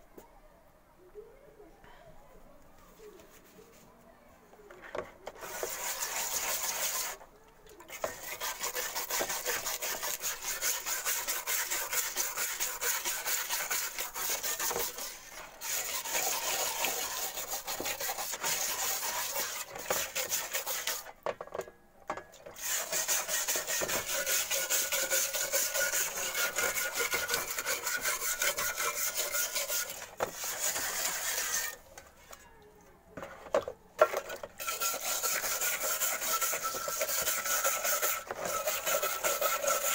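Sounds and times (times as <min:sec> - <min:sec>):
wire brush scrubbing metal: 0:05.3 - 0:07.2, 0:07.9 - 0:21.2, 0:22.6 - 0:32.4, 0:34.0 - 0:39.9.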